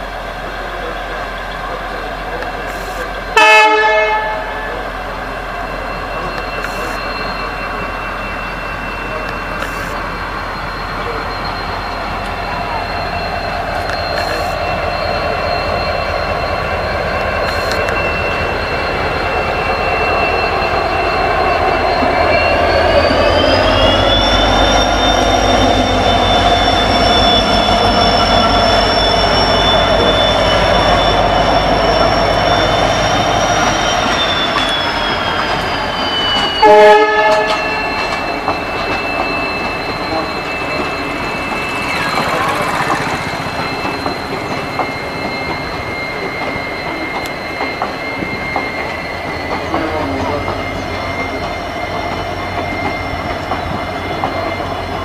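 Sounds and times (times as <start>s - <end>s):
diesel locomotive engine rumbling: 0.0s - 55.0s
train horn blast: 3.4s - 4.8s, 36.6s - 38.1s.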